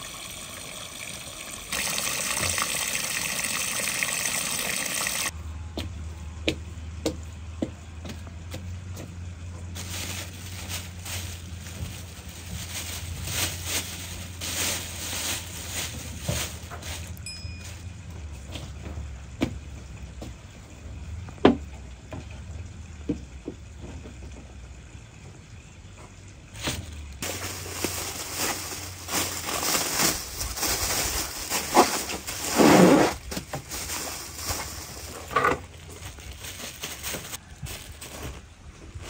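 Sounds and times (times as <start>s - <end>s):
plastic bag rustling and crinkling: 9.7s - 17.8s, 26.6s - 39.0s.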